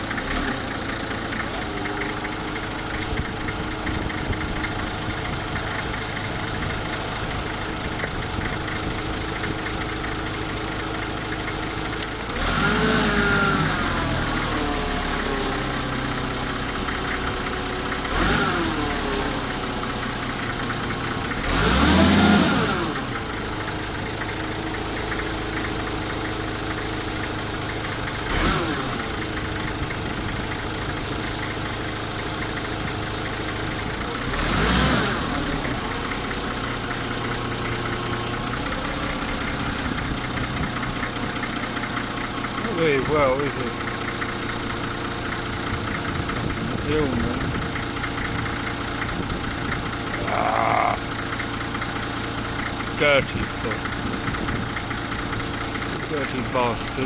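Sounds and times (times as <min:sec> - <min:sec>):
engine revving up and down: 0:00.0 - 0:00.8, 0:12.3 - 0:15.8, 0:18.0 - 0:19.5, 0:21.4 - 0:23.2, 0:28.2 - 0:29.1, 0:34.0 - 0:36.0, 0:50.1 - 0:51.1
vehicle engine idling: 0:00.0 - 0:57.0.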